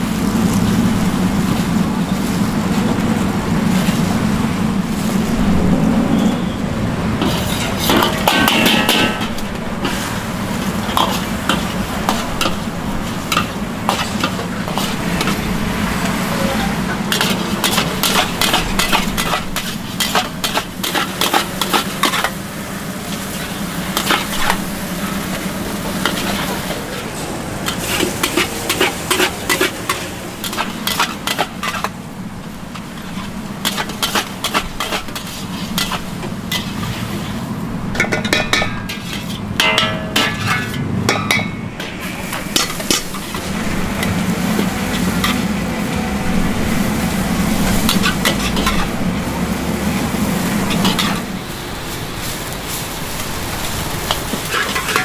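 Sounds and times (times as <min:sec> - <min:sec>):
noodles sizzling: 0:00.0 - 0:40.8, 0:41.5 - 0:55.0
metal spatula clacking in a wok: 0:07.2 - 0:09.5, 0:38.0 - 0:41.9, 0:54.0 - 0:55.0.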